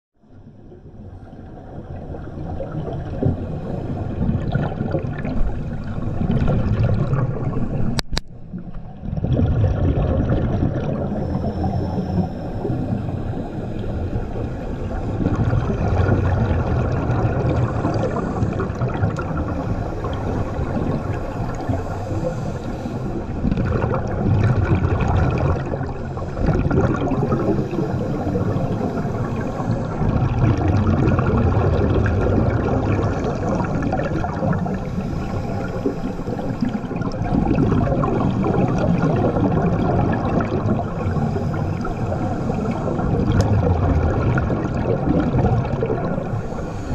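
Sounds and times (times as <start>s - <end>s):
underwater bubbles gurgling: 0.2s - 46.9s
regulator breathing underwater: 10.6s - 46.9s.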